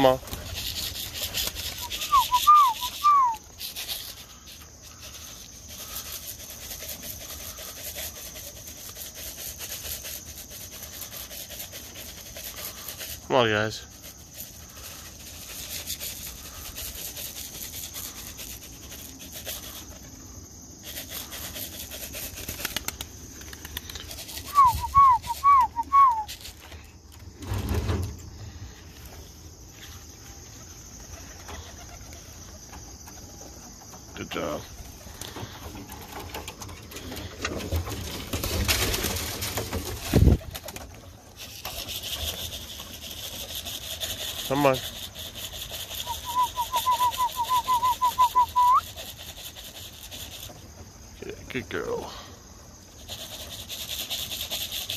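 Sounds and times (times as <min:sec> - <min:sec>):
faint outdoor background: 0:00.0 - 0:54.9
person whistling short falling notes: 0:01.8 - 0:03.4, 0:24.4 - 0:26.4, 0:46.1 - 0:48.8
pigeons shuffling in wooden box: 0:31.0 - 0:44.7.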